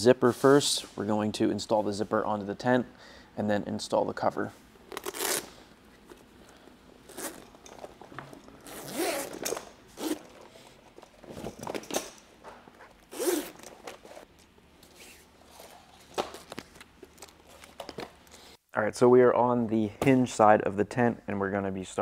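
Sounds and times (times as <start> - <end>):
zipper rasping open: 4.9 - 5.5, 7.0 - 10.6, 12.9 - 14.3.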